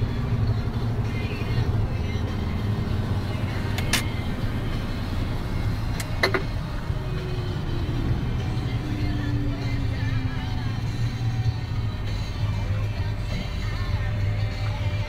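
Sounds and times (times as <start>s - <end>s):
truck engine and road noise: 0.0s - 15.0s
sharp clicks: 5.9s - 6.4s.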